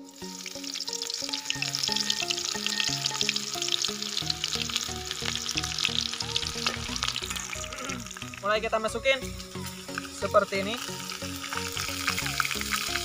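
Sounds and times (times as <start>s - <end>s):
background music: 0.0s - 13.0s
oil sizzling in a wok: 0.0s - 13.0s.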